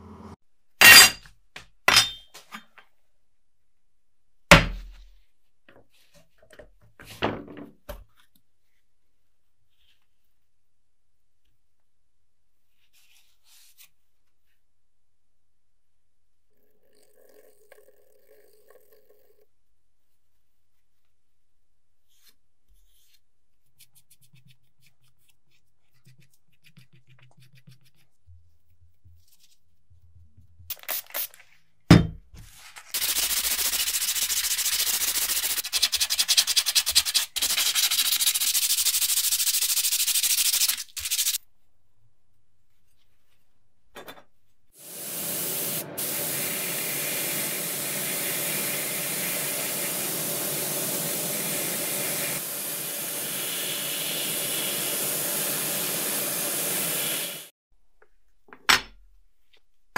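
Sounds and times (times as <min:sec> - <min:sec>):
sandpaper rubbing on metal: 0:32.9 - 0:41.4
spray gun hissing: 0:33.0 - 0:35.6, 0:44.8 - 0:57.5.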